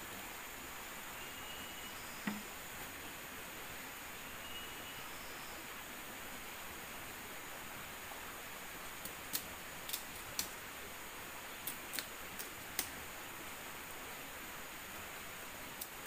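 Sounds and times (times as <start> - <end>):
steady hiss: 0.0 - 16.0
campfire crackling: 8.8 - 14.1, 15.4 - 16.0.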